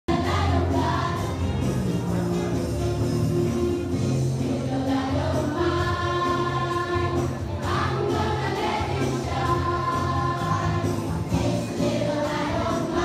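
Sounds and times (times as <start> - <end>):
choir singing: 0.1 - 1.4, 4.4 - 13.0
musical accompaniment: 0.1 - 13.0.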